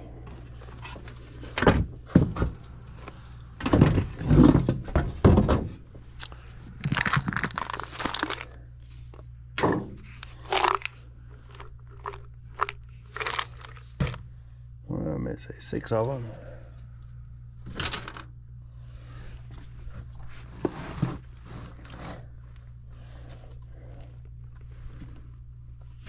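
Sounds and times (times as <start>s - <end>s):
furnace blower humming: 0.0s - 26.0s
tools rummaged in a bag: 6.8s - 8.6s, 10.1s - 14.2s.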